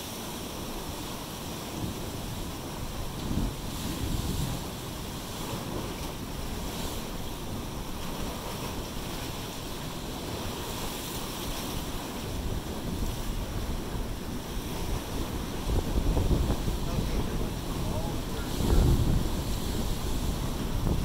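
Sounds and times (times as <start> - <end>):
waves breaking on rocks: 0.0 - 21.0.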